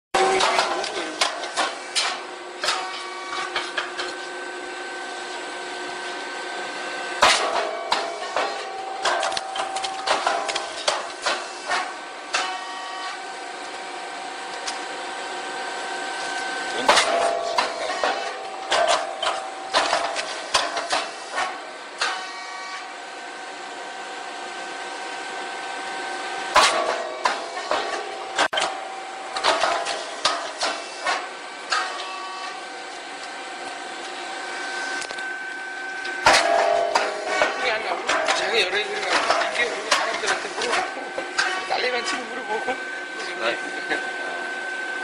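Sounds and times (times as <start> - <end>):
machine humming with high whine: 0.2 - 45.0
machine knocks and clatters: 7.2 - 12.6, 16.8 - 21.6, 29.4 - 32.0, 36.1 - 42.2.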